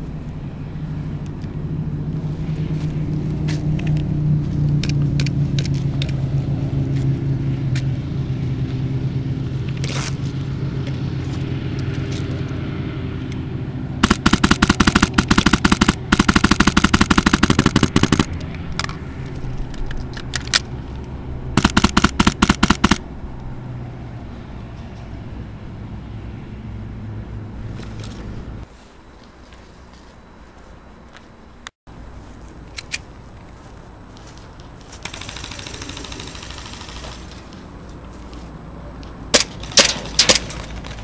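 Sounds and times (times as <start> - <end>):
low steady rumble: 0.0 - 35.7
airsoft rifle firing: 14.0 - 18.4, 21.6 - 23.0, 35.0 - 37.5.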